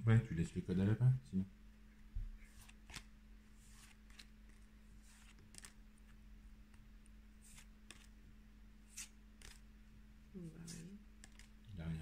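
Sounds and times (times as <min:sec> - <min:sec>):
cards sliding off a stack: 0:02.5 - 0:05.8, 0:08.9 - 0:09.6.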